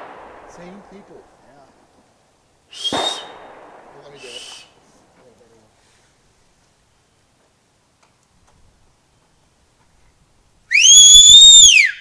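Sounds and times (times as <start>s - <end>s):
whistle sliding up in pitch: 2.7s - 3.3s, 4.2s - 4.7s, 10.7s - 12.0s.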